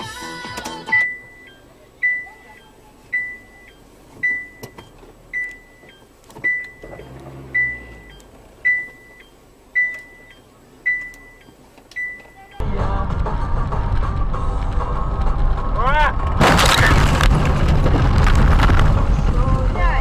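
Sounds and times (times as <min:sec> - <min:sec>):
high electronic beeps: 0:00.9 - 0:12.6
low rumble: 0:12.6 - 0:20.0.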